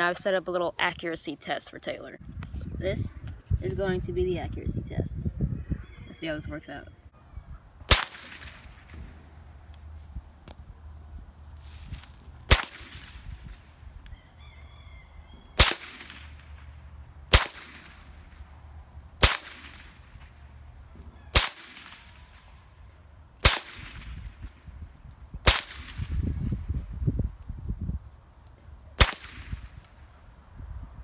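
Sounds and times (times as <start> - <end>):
rifle shots with echo: 7.9 - 9.2, 12.5 - 13.5, 15.6 - 16.7, 17.3 - 18.4, 19.2 - 20.4, 21.3 - 22.5, 23.4 - 24.3, 25.4 - 26.1, 29.0 - 29.8.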